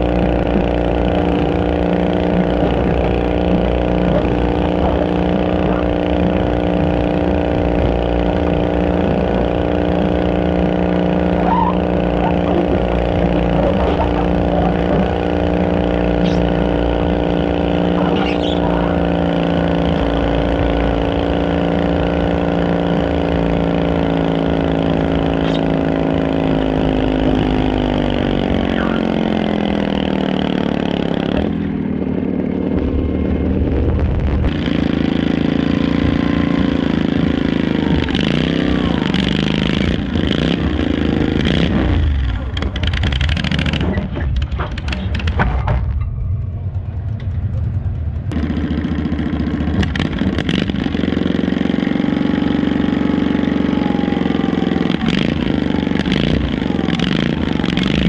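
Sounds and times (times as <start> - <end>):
tractor engine lugging under load: 0.0 - 33.8
second tractor engine running: 0.0 - 58.0.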